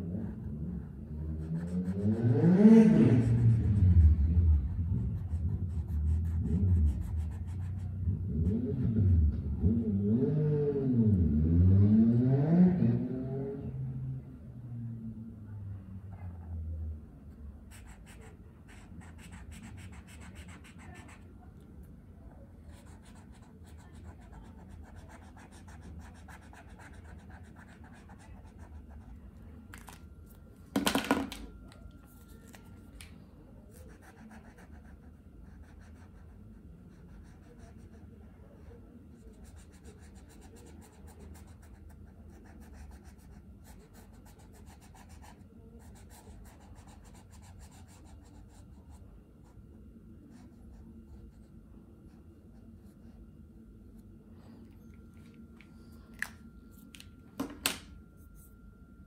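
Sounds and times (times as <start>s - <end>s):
marker scratching across paper: 17.7s - 21.2s.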